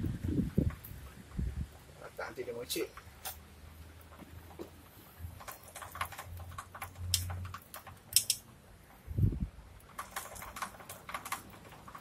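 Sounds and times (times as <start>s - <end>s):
metallic clicks from bike chain: 5.4s - 8.4s.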